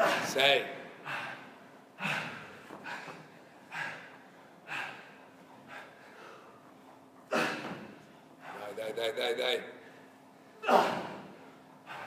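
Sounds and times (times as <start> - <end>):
man breathing hard: 1.0 - 6.8, 11.4 - 12.0.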